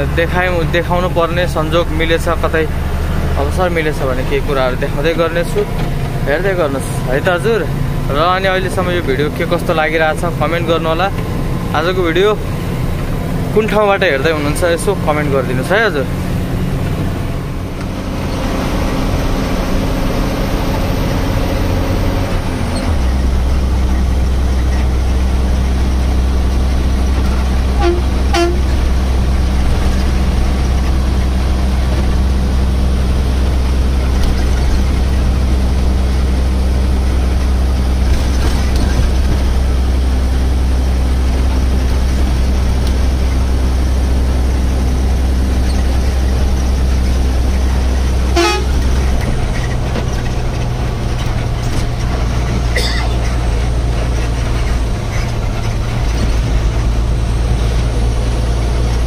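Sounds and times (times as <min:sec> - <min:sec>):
truck diesel engine drone: 0:00.0 - 0:59.0
truck horn toots: 0:27.8 - 0:28.9, 0:48.3 - 0:49.2.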